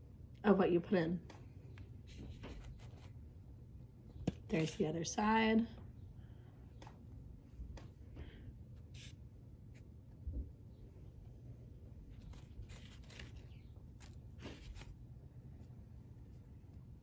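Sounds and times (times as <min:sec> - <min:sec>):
low steady hum: 0:00.0 - 0:17.0
food rustling on paper plate: 0:11.9 - 0:16.4.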